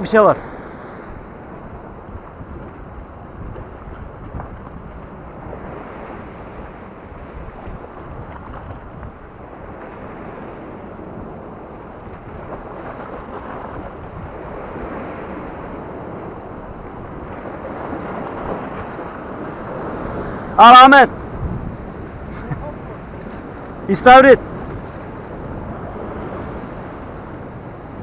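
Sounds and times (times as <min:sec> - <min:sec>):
wind on microphone: 0:00.7 - 0:28.0
waves washing against rocky shore: 0:01.2 - 0:28.0.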